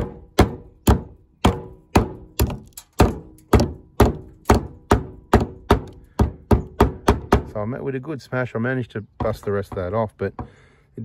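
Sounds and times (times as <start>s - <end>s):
hammer striking plastic tank: 0.0s - 7.6s.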